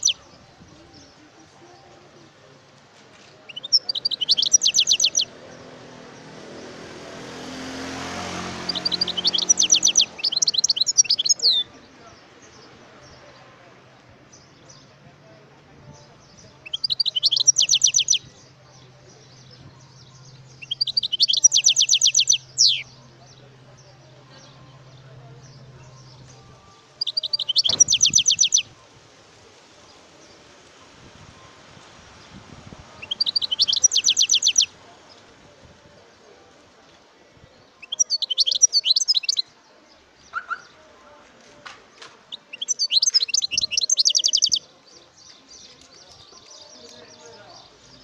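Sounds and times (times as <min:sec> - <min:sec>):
goldfinch singing: 0:00.0 - 0:06.3, 0:07.6 - 0:13.4, 0:15.9 - 0:28.8, 0:32.2 - 0:35.3, 0:37.6 - 0:41.2, 0:42.0 - 0:48.0
finch twittering song: 0:00.0 - 0:13.5, 0:14.3 - 0:28.8, 0:31.4 - 0:35.3, 0:37.5 - 0:41.2, 0:42.2 - 0:48.0.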